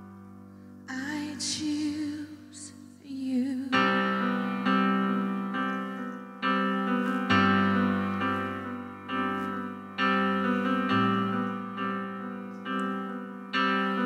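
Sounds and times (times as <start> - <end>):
electric piano chords: 0.0 - 2.3, 3.6 - 14.0.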